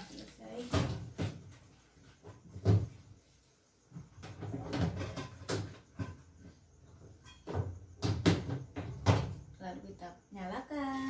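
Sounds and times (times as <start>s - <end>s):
thuds and plastic clacks: 0.6s - 3.2s, 3.9s - 6.5s, 7.4s - 9.5s.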